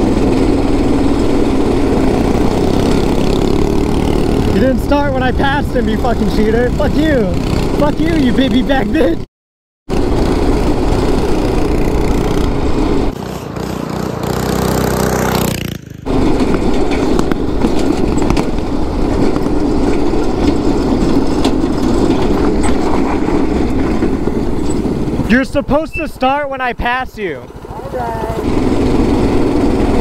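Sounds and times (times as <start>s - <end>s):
wind rushing over microphone: 0.0s - 8.3s
go-kart engine running hard: 0.0s - 9.2s, 9.9s - 25.8s, 27.4s - 30.0s
minibike engine: 0.0s - 9.2s, 9.9s - 30.0s.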